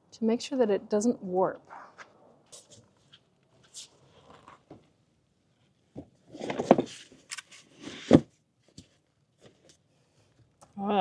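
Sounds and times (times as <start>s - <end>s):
cardboard scraping: 6.3s - 8.4s.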